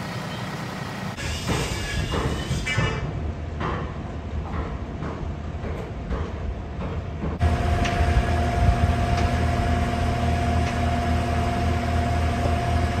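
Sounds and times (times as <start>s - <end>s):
machinery engine rumble: 7.1s - 13.0s.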